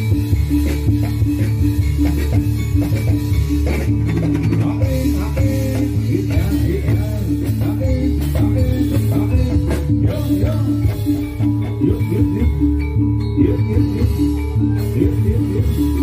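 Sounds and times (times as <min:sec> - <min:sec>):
drum pitch bends: 0:00.0 - 0:16.0
gamelan ensemble playing: 0:00.0 - 0:16.0.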